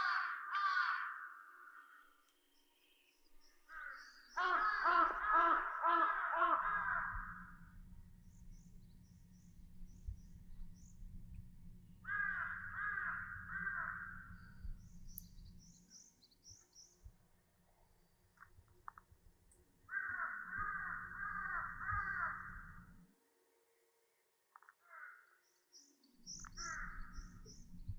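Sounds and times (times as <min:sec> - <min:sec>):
crows cawing: 0:00.0 - 0:02.2, 0:03.7 - 0:07.7, 0:12.0 - 0:14.4, 0:19.9 - 0:22.9, 0:24.8 - 0:25.4, 0:26.6 - 0:27.4
small birds chirping faintly: 0:00.0 - 0:27.9
low rumble: 0:06.6 - 0:15.8, 0:26.3 - 0:27.9.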